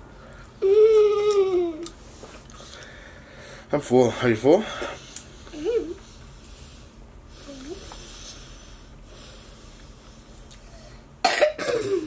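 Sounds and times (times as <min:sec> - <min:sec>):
low electrical hum: 0:00.0 - 0:12.0
faint breathing: 0:02.0 - 0:11.1.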